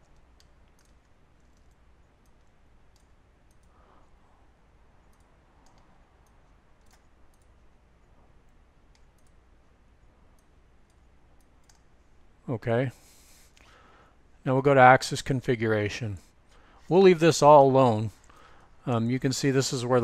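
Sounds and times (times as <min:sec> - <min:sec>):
computer mouse clicks: 0:00.0 - 0:04.2, 0:05.0 - 0:12.0
low steady hum: 0:00.0 - 0:20.0.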